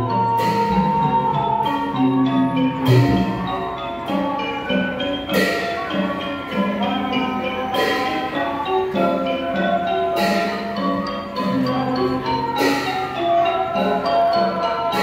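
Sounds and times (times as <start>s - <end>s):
drums: 0.0s - 15.0s
xylophone and gong melody: 0.0s - 15.0s
bright cymbal clash: 2.8s - 3.8s.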